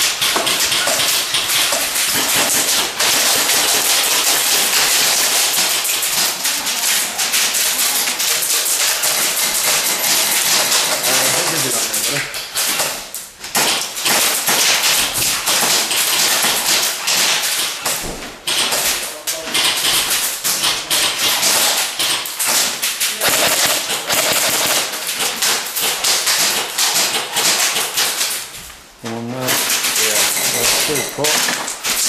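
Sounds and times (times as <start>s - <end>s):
airsoft guns firing rapidly: 23.2s - 25.5s.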